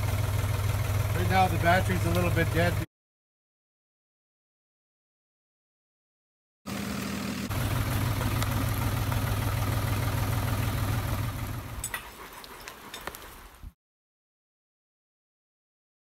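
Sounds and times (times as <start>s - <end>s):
tractor engine idling: 0.0s - 2.9s, 6.7s - 13.2s.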